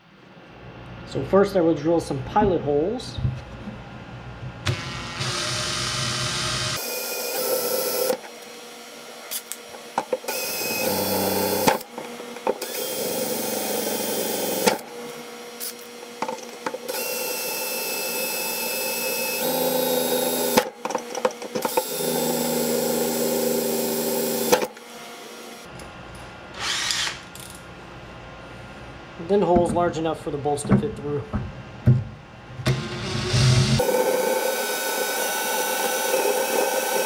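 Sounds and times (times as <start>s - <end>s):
cordless drill boring metal: 4.7s - 9.4s, 10.2s - 11.9s, 12.6s - 14.8s, 16.9s - 20.6s, 21.6s - 25.6s, 26.6s - 27.2s, 33.8s - 37.0s.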